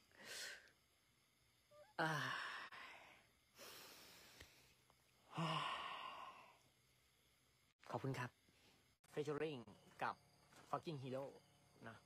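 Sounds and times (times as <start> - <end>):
person sighing: 1.8 - 4.4, 5.3 - 6.6.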